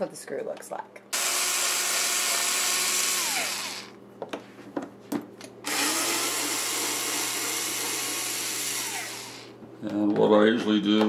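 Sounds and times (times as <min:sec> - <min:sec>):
cordless screwdriver whirring: 0:01.2 - 0:04.0, 0:05.7 - 0:09.5.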